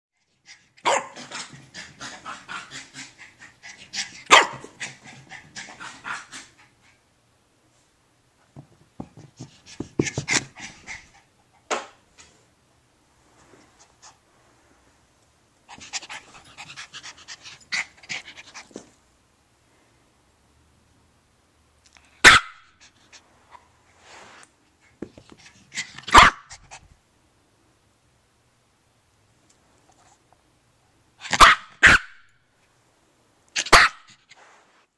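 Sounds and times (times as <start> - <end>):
puppy panting: 0.5 - 7.0, 9.4 - 11.6, 15.7 - 18.9
puppy barking: 0.8 - 1.3, 4.3 - 4.7, 22.2 - 22.7, 26.0 - 26.6, 31.2 - 32.3, 33.6 - 34.1.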